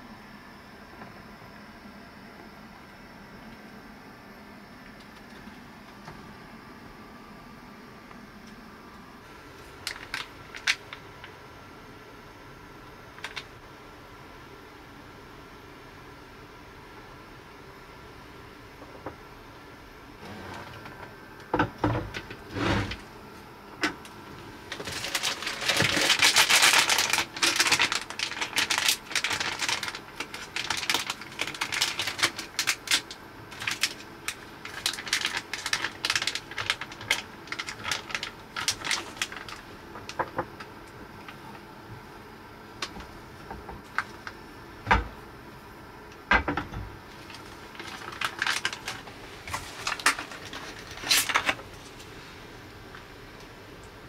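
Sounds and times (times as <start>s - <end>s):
plastic packaging crinkling and tearing: 9.5s - 11.3s, 24.5s - 41.4s, 43.8s - 44.4s, 47.1s - 52.1s.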